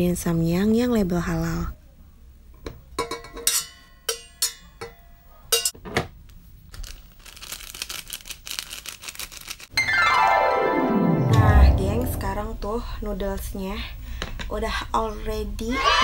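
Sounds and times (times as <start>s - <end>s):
plastic sachets crinkling: 6.7s - 9.7s.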